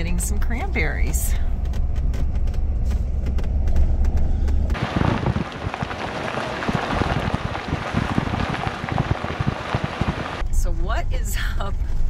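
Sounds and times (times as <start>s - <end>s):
vehicle engine drone in cab: 0.0s - 10.8s
wind rush: 4.7s - 10.4s
tyre rolling over gravel: 4.8s - 10.4s.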